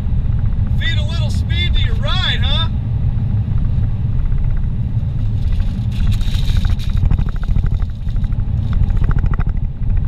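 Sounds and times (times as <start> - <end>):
car engine rumble: 0.0 - 10.0
car tyre noise: 3.6 - 9.6.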